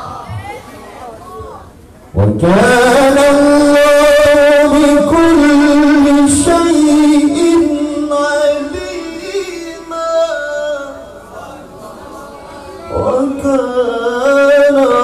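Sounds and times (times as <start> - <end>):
man chanting melodic recitation: 2.1 - 11.7, 12.8 - 15.0.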